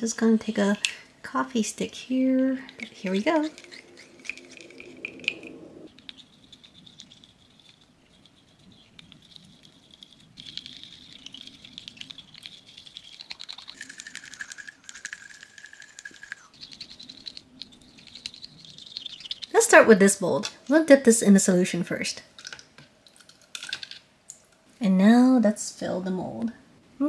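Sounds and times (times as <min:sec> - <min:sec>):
faint high whine: 0:00.0 - 0:20.8.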